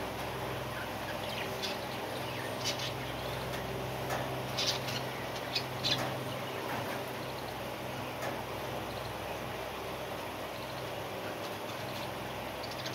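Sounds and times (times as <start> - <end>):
steady low hum: 0.0 - 12.9
budgerigars chirping: 0.8 - 3.5, 4.5 - 7.6, 11.5 - 12.9.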